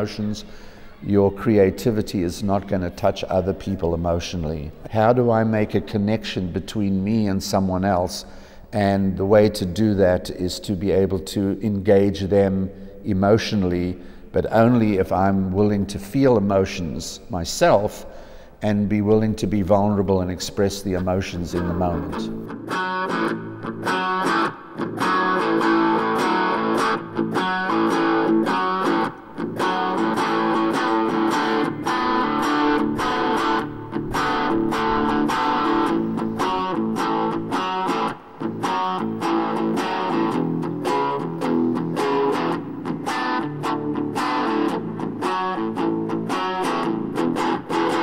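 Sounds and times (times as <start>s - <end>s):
electric guitar choppy strokes: 22.1s - 48.0s.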